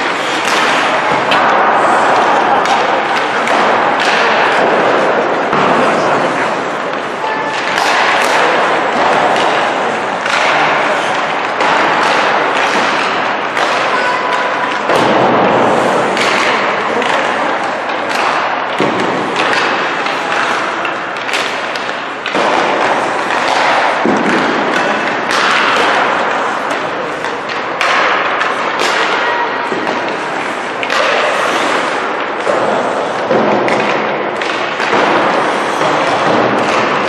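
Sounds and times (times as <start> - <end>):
pucks and sticks thudding on boards: 0.0 - 37.0
skates hissing on ice: 30.4 - 33.3.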